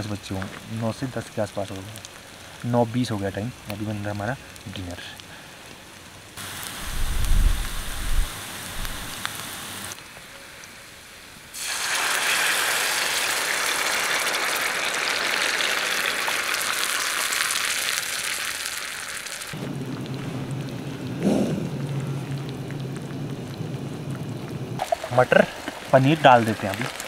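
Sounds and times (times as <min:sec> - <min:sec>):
food sizzling in a pan: 0:06.4 - 0:10.0, 0:11.5 - 0:19.6, 0:24.8 - 0:27.0.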